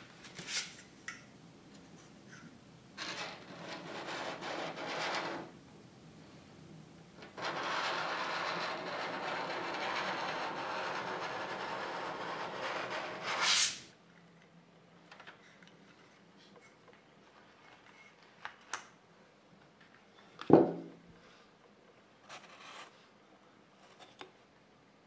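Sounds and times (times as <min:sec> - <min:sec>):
squeegee scraping metal stencil: 0:03.0 - 0:05.6, 0:07.2 - 0:13.8.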